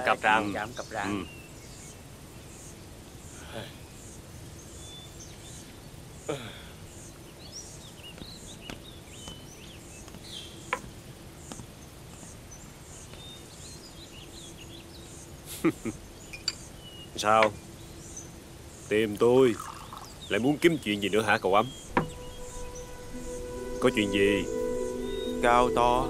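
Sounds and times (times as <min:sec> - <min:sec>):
insect chirping: 0:00.0 - 0:26.0
sharp knocks: 0:21.9 - 0:22.2.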